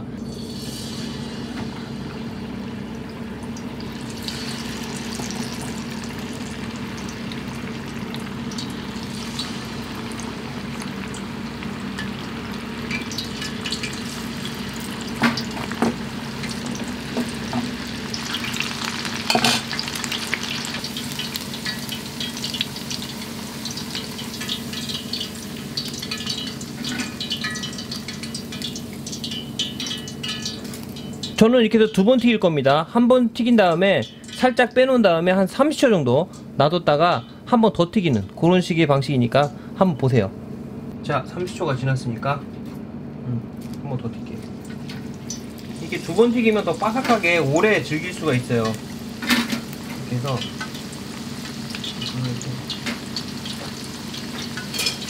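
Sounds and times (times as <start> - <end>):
food deep-frying in oil: 0.2 - 32.1, 43.6 - 55.0.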